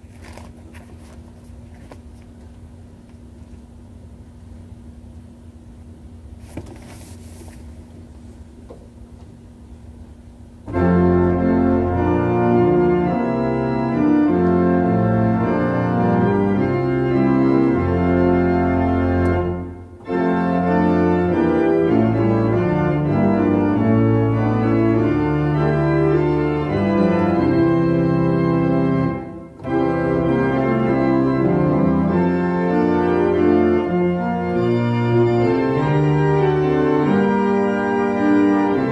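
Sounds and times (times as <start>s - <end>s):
church organ playing a hymn: 10.6s - 38.9s.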